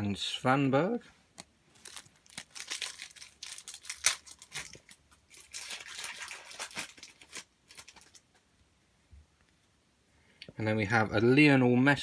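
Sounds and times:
wrapper tearing and crinkling: 1.7 - 8.3.

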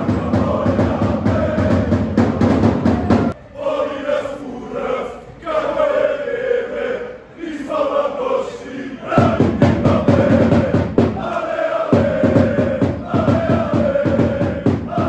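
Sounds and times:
drumbeats: 0.0 - 3.4, 9.1 - 15.0
crowd chanting in unison: 0.0 - 15.0.

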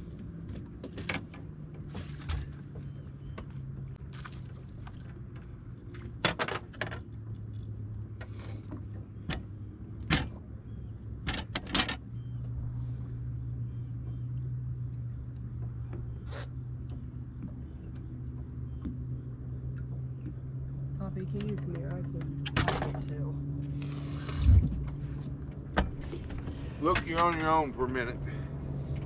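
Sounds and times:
steady low hum: 7.2 - 29.0.

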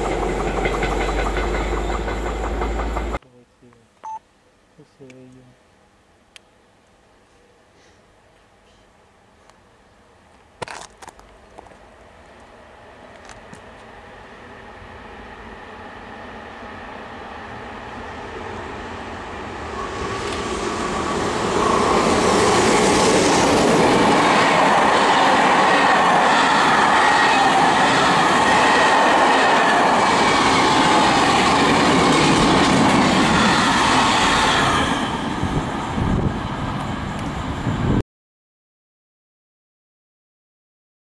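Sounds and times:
freight train passing: 0.0 - 3.2, 11.1 - 38.0
wheels ringing on rails: 0.0 - 3.2.

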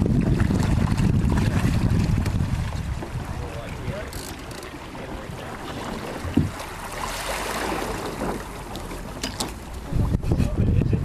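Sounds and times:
wind noise: 0.0 - 4.2, 5.0 - 6.6, 9.7 - 11.0
water lapping along boat hull: 0.0 - 11.0.

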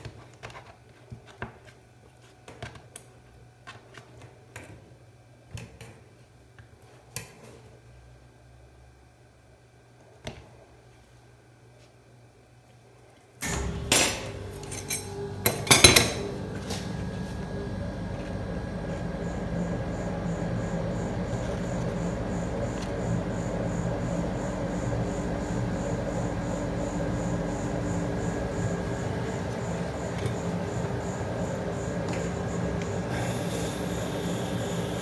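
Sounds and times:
steady hum: 7.8 - 35.0.

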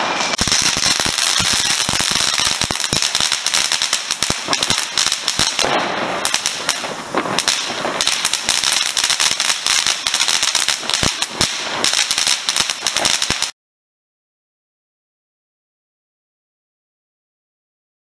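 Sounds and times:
fireworks crackling and popping: 0.0 - 13.6
steady fireworks hiss: 0.0 - 13.6.

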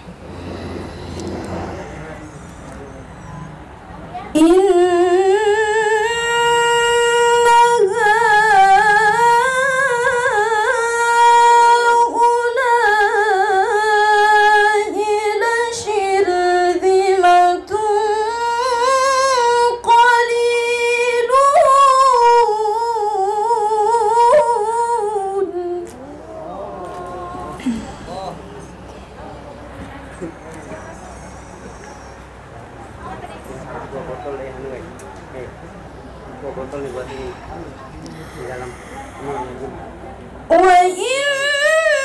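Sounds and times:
woman reciting melodically: 4.2 - 28.1, 40.4 - 42.0.

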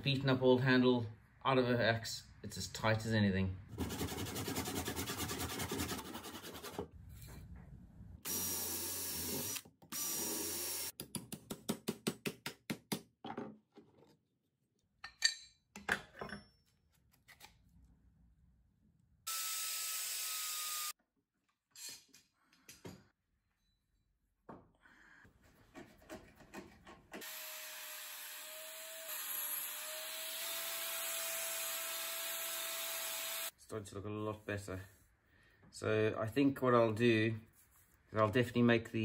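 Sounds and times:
handsaw cutting wood: 3.8 - 6.9.

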